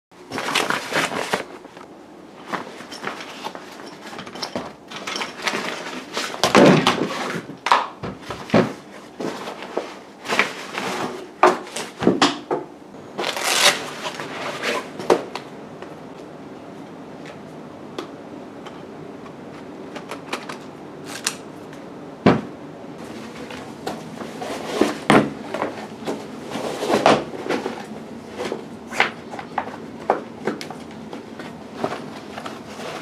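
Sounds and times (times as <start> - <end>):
fabric bag rustling: 0.2 - 1.8, 13.1 - 15.0.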